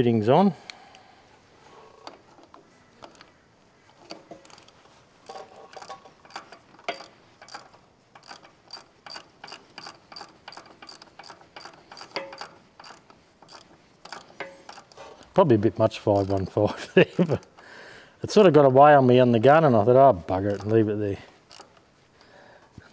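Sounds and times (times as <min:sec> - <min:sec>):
socket ratchet clicking: 0:05.8 - 0:15.3, 0:16.0 - 0:16.6, 0:17.2 - 0:17.7, 0:20.4 - 0:20.8, 0:21.4 - 0:21.9.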